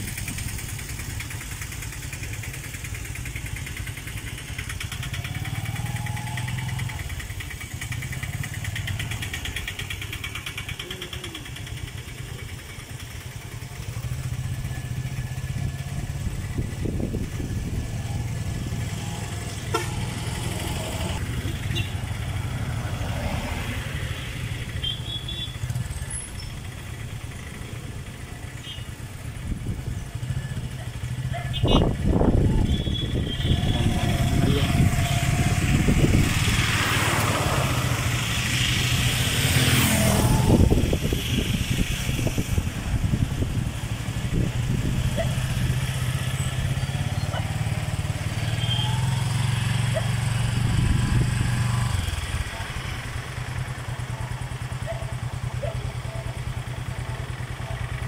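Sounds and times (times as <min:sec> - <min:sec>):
engine idling: 0:00.0 - 0:18.1, 0:51.9 - 0:58.0
vehicle passing: 0:14.8 - 0:24.8, 0:31.2 - 0:54.2.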